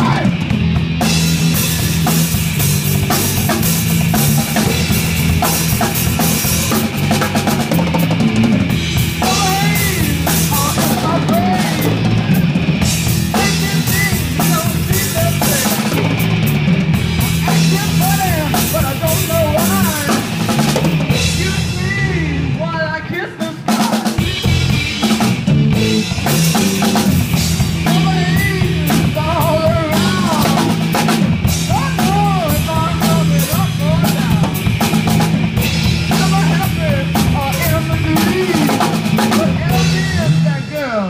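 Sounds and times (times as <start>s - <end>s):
distorted electric guitars: 0.0s - 41.0s
drum kit: 0.0s - 41.0s
electric bass: 0.0s - 41.0s
person singing: 9.2s - 12.6s, 13.2s - 16.1s, 17.4s - 20.3s, 21.2s - 24.8s, 27.8s - 30.9s, 31.6s - 34.6s, 36.1s - 40.8s.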